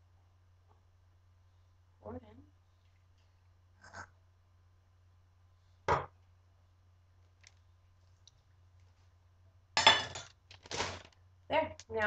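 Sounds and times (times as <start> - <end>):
metal can set down on counter: 5.9 - 6.1
soft rustle: 7.2 - 9.3.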